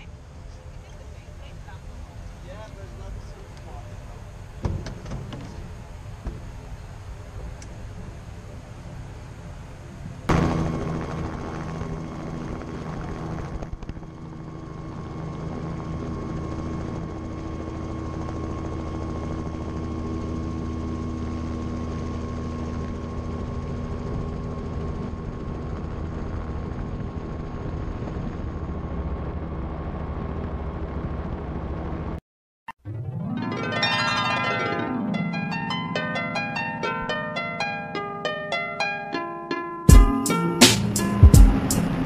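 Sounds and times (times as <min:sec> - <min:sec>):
thin steady whine: 0:00.0 - 0:32.0
helicopter engine and rotor: 0:00.0 - 0:32.2.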